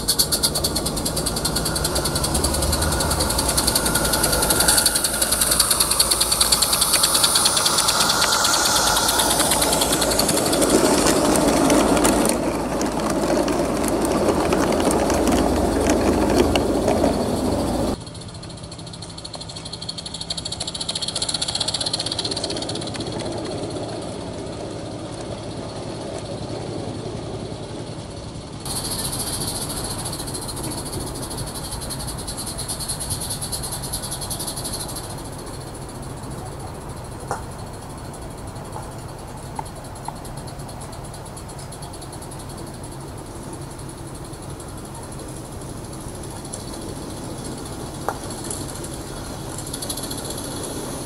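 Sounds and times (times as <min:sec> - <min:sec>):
train wheels clattering over rail joints: 0:00.0 - 0:18.0, 0:28.7 - 0:51.0.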